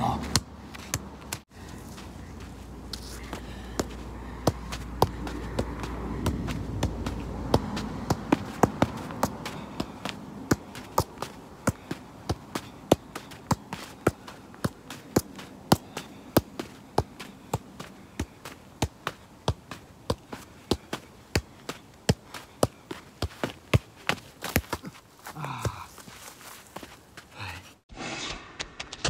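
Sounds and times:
football thudding on feet: 0.0 - 27.0.

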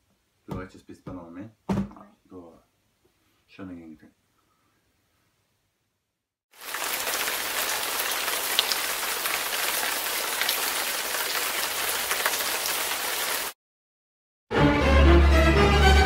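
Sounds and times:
steady rain: 6.5 - 13.6.

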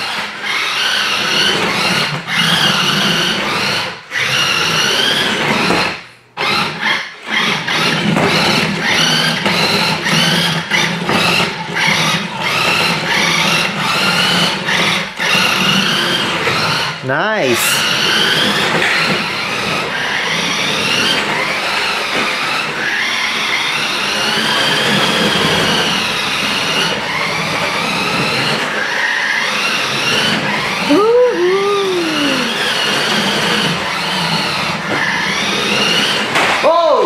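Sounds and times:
toy car electric motor whining: 0.0 - 17.0, 17.6 - 37.0
rising and falling call: 30.9 - 32.7.

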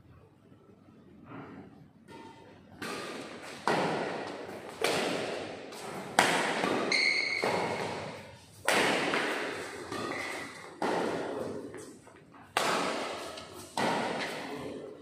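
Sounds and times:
racket hitting shuttlecock: 2.1 - 14.8
shoe squeaking on court: 6.8 - 8.2, 9.8 - 10.7.

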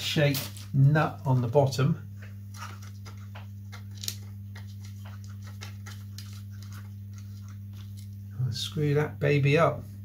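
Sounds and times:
steady low hum: 0.0 - 10.0
fingers clicking and scratching: 2.5 - 8.2.

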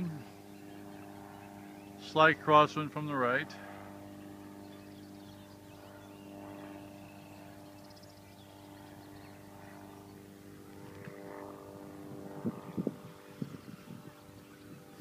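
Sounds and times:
distant light aircraft droning: 0.0 - 15.0.

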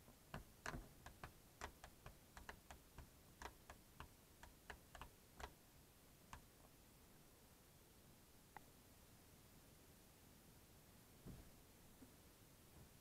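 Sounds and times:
faint plastic clicks and taps: 0.0 - 5.6.

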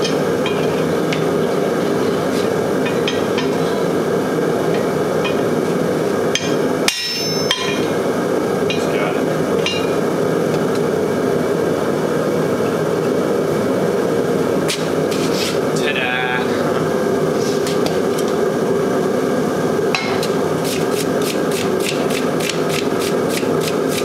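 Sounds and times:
workshop roar: 0.0 - 24.0
hammer striking steel on anvil: 6.3 - 8.0, 9.6 - 10.0, 20.0 - 20.4.

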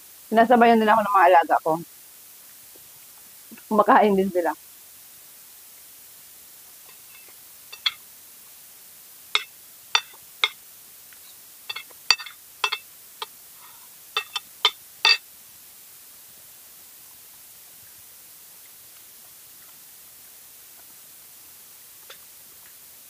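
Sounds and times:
cutlery clinking on a plate: 6.9 - 8.0, 9.4 - 10.6, 11.7 - 12.8, 14.2 - 15.2.

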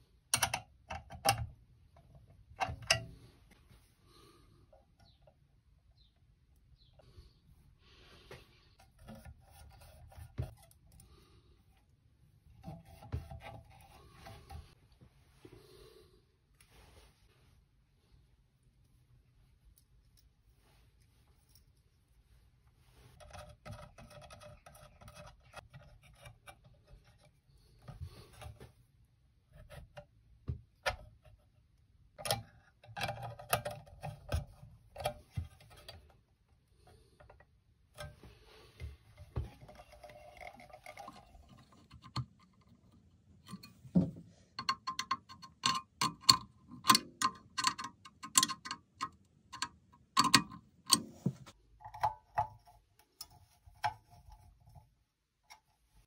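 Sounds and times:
plastic and metal clicks and knocks: 0.3 - 3.2, 39.2 - 54.1.

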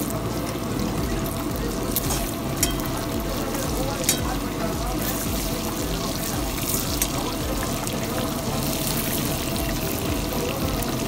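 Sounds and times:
chicken sizzling in hot oil: 0.0 - 11.0
steel ladle clinking against pan: 2.1 - 3.0, 4.0 - 4.4.

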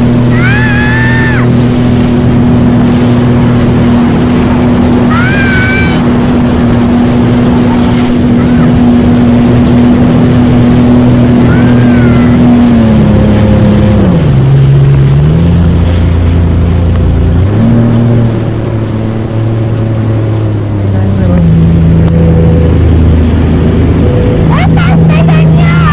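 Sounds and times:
jet ski engine running: 0.0 - 25.9
rush of wind and water: 0.0 - 25.9.

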